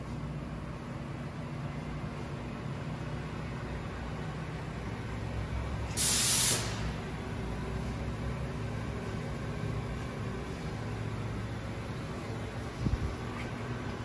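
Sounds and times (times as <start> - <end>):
loud spraying hiss: 6.0 - 6.8.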